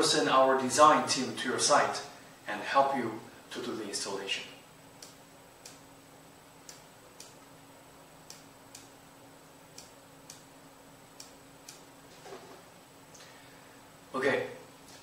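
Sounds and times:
faint ticking clicks: 5.0 - 5.8, 6.6 - 7.5, 8.2 - 9.0, 9.7 - 10.5, 11.1 - 11.9.

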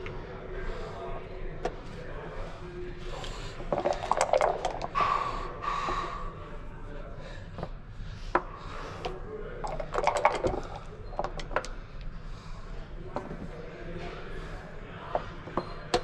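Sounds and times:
dice rattling in a cup: 3.7 - 4.9, 9.7 - 11.6.

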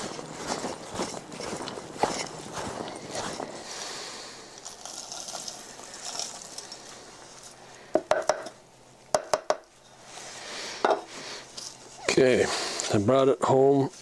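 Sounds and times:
footsteps in snow: 0.0 - 7.6.

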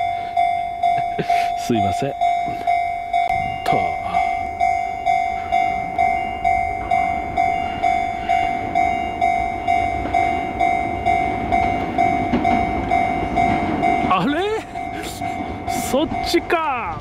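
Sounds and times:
level crossing bell ringing: 0.0 - 17.0
low rumble: 2.1 - 17.0.

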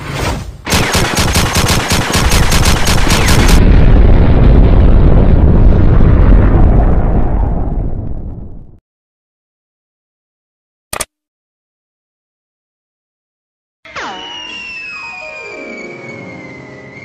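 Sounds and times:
machine-gun fire: 0.7 - 3.6
explosion rumble: 3.1 - 8.8.

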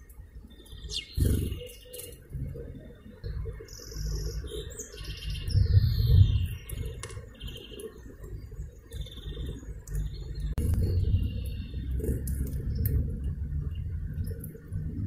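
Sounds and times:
songbirds chirping: 0.0 - 15.0
low rumble: 8.2 - 15.0.

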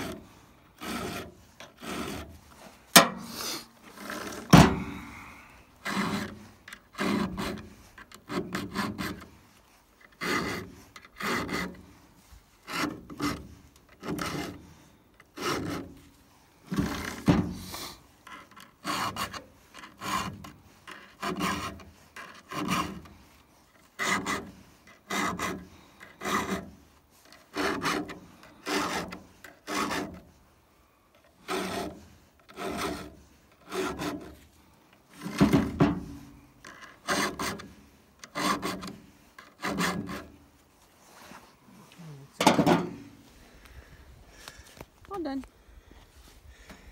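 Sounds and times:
file rasping on saw chain: 0.8 - 2.4, 5.8 - 9.3, 10.1 - 12.0, 12.6 - 16.0, 18.2 - 23.2, 23.8 - 30.3, 31.4 - 34.4, 35.1 - 40.4.

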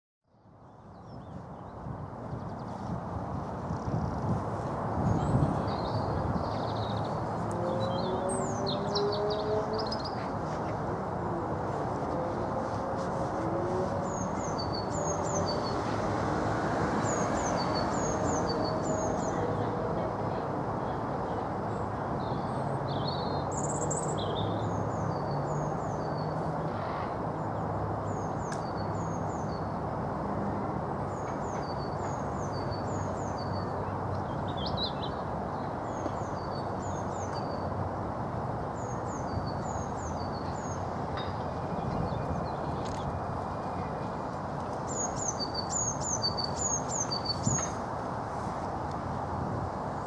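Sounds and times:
songbirds chirping: 3.6 - 26.8, 38.6 - 50.0.

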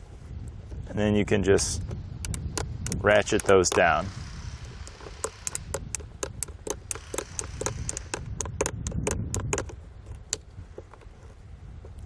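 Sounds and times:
ratchet buckles clicking: 1.8 - 12.0.

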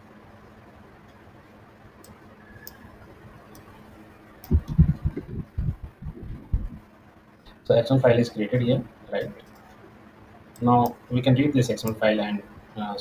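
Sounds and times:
computer mouse clicks: 2.0 - 2.9
low thumps and rumbles: 4.5 - 6.9.

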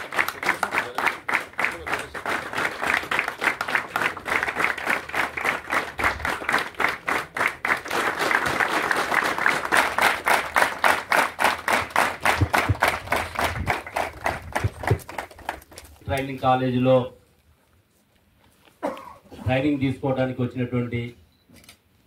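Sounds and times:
large crowd applauding: 0.0 - 15.9.

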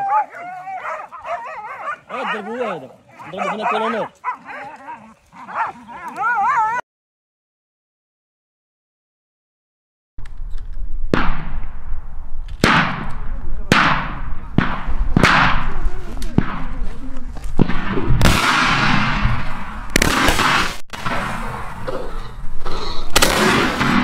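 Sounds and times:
gunshots echoing: 11.1 - 22.2, 23.1 - 24.0.

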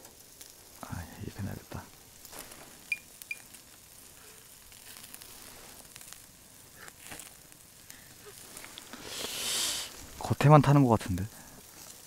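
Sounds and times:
meat sizzling on a grill: 0.0 - 12.0
small pops: 2.0 - 10.0.

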